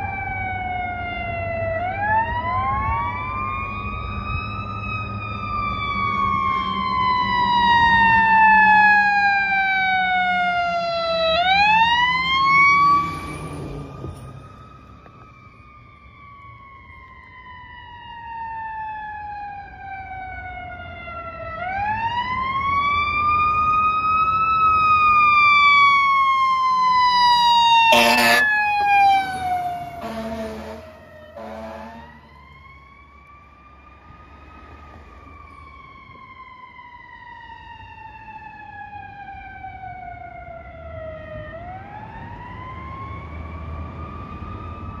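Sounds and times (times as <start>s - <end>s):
fire truck siren wailing: 0.0s - 45.0s
fire truck horn blasts: 27.9s - 28.6s, 30.0s - 32.3s.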